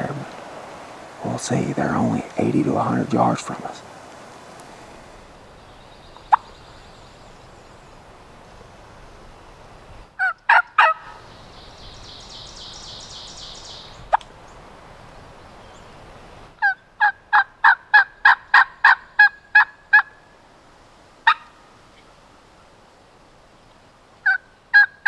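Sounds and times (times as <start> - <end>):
turkey yelping: 6.2 - 6.5, 10.2 - 11.2, 16.6 - 20.2, 21.2 - 21.6, 24.2 - 25.0.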